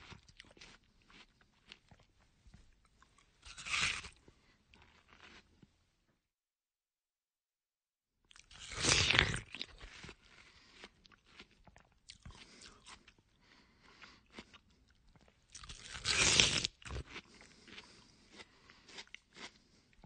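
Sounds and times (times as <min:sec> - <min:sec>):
soft chewing: 0:00.0 - 0:05.8, 0:09.4 - 0:20.0
crunchy wet watermelon bites: 0:03.1 - 0:04.2, 0:08.3 - 0:13.2, 0:14.0 - 0:20.0.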